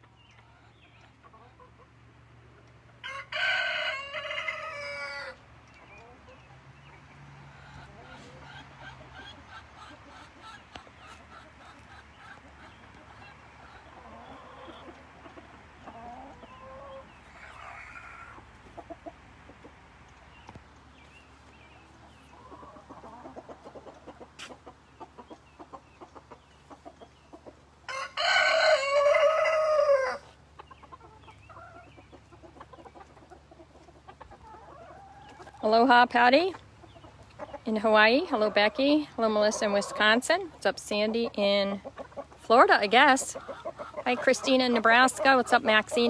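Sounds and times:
hens clucking softly: 0:00.0 - 0:46.0
rooster crowing: 0:03.0 - 0:05.4, 0:27.9 - 0:30.3.

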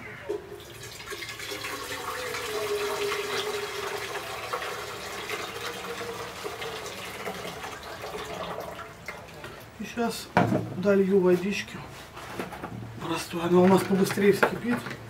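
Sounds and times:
water pouring into a saucepan: 0:00.6 - 0:09.8.

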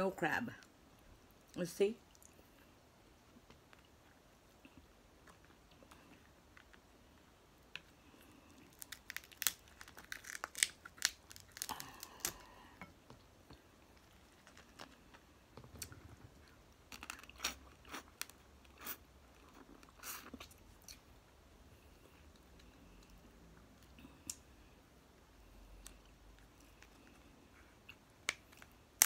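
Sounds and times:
crunching and chewing: 0:03.1 - 0:21.2
crab shells cracking: 0:08.6 - 0:12.4.

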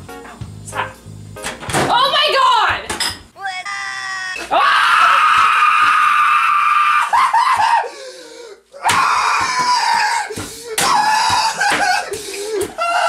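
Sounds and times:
high-pitched screaming voices: 0:03.6 - 0:07.1, 0:08.8 - 0:13.0.

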